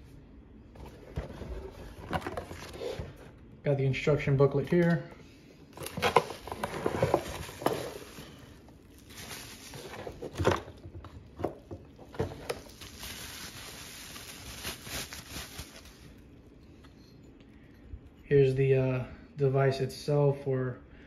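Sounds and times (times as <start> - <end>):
plastic wrap crinkling: 5.7 - 16.6
cardboard scraping: 5.8 - 8.4
hands rummaging in cardboard box: 5.8 - 16.1.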